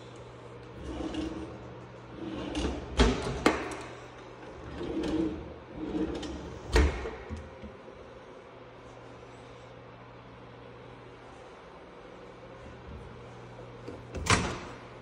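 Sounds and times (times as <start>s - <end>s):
drawers sliding open and shut: 0.7s - 7.7s.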